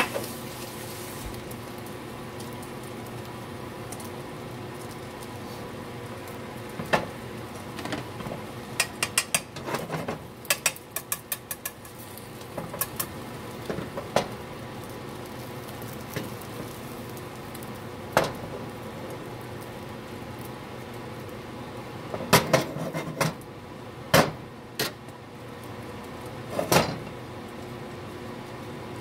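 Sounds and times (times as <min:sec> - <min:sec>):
metal tongs clicking on frying pan: 0:08.8 - 0:09.6, 0:10.4 - 0:11.9, 0:12.7 - 0:13.2.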